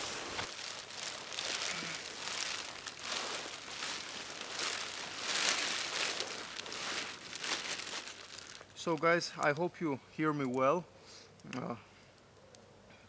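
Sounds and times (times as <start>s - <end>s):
plastic sheeting crinkling: 0.0s - 9.6s.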